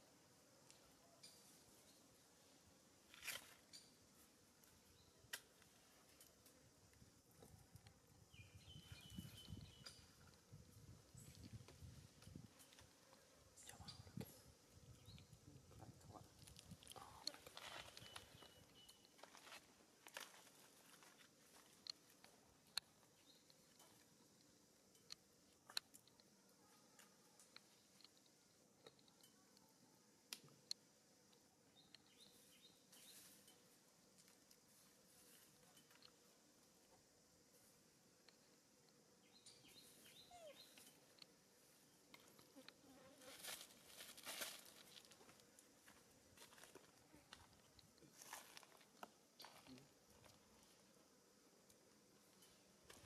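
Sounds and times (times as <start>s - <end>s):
soft rustles on dry leaves: 3.0s - 7.0s, 15.9s - 22.5s, 32.2s - 36.2s, 43.1s - 51.0s
dry leaves rustling: 43.3s - 45.2s.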